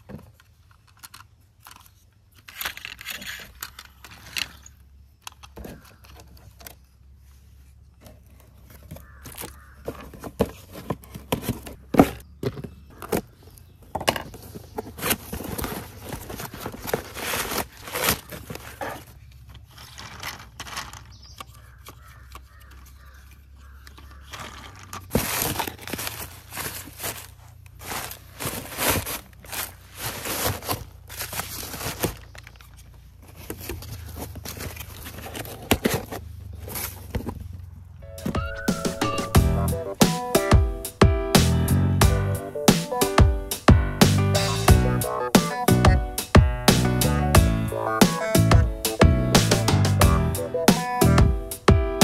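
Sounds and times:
paper rustling and crinkling: 0:05.4 - 0:12.2, 0:14.1 - 0:37.4
cardboard scraping and knocking: 0:08.0 - 0:20.9, 0:24.4 - 0:32.2.

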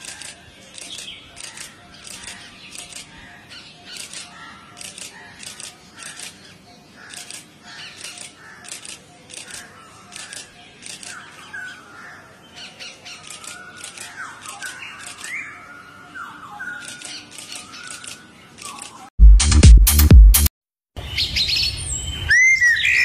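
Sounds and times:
parakeets raspy calls: 0:00.0 - 0:18.8.

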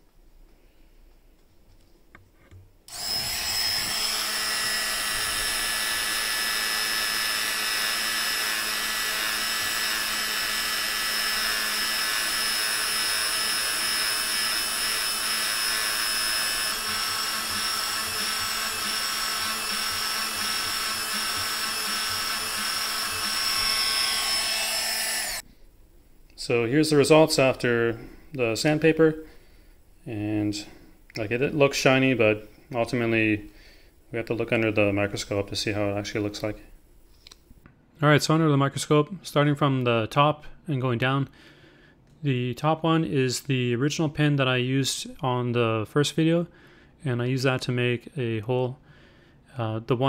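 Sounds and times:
rotary tool whining: 0:02.9 - 0:25.5.

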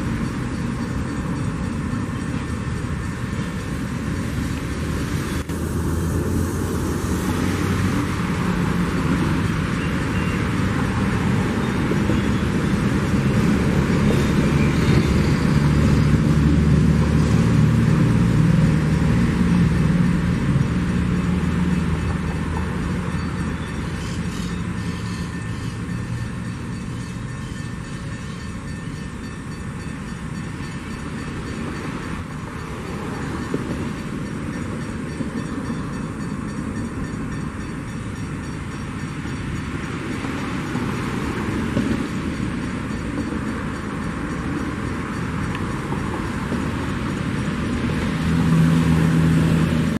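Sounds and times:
freight train wheels rumbling on track: 0:00.0 - 0:49.9.

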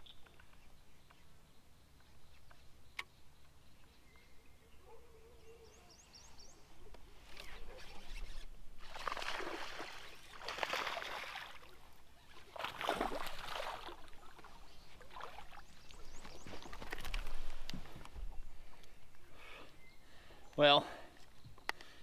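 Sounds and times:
fish splashing at water surface: 0:08.9 - 0:11.8, 0:12.5 - 0:14.1.

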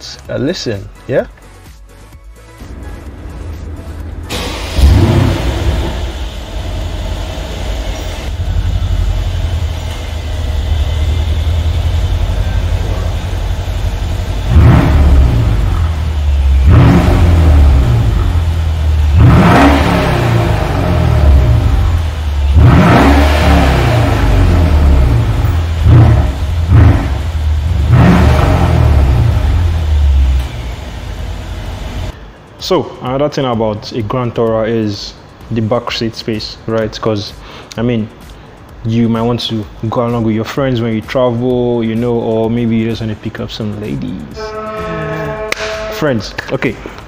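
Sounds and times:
car engine idling and revving: 0:02.6 - 0:32.3.

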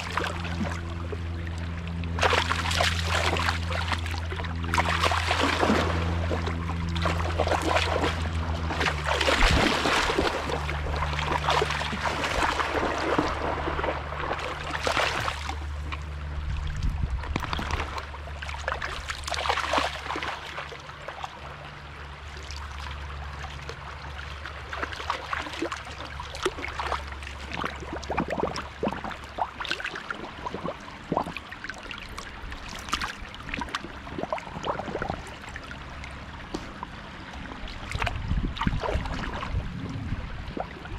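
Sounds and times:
dogs splashing through water: 0:00.0 - 0:01.3, 0:01.9 - 0:21.8, 0:22.6 - 0:39.9
low steady hum: 0:00.0 - 0:40.9
stream water trickling: 0:00.0 - 0:40.9.

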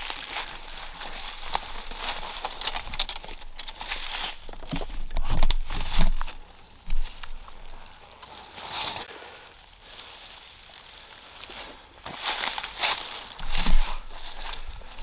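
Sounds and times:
footsteps through dry leaves: 0:00.0 - 0:15.0.

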